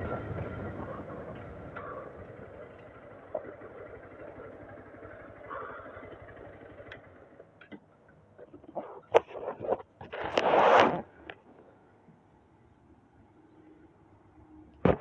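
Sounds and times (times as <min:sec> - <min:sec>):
motorcycle engine running: 0:00.0 - 0:10.3.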